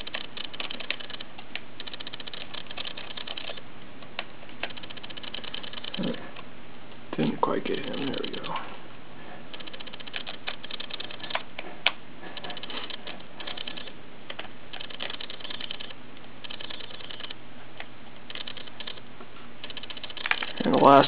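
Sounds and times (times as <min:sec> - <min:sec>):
screwdriver fine rapid clicking: 0:00.0 - 0:03.6, 0:04.6 - 0:06.1, 0:09.5 - 0:11.5, 0:12.4 - 0:17.4, 0:18.3 - 0:19.0, 0:19.6 - 0:21.0.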